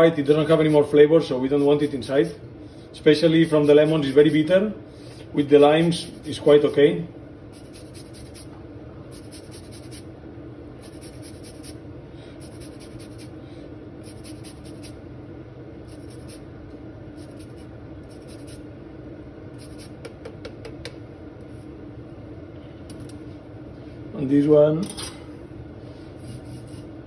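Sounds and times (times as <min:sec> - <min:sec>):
steady low hum: 0:00.0 - 0:27.0
peel scraping on grater: 0:07.6 - 0:08.5, 0:09.2 - 0:10.0, 0:10.8 - 0:11.8, 0:14.1 - 0:15.0, 0:26.2 - 0:26.9.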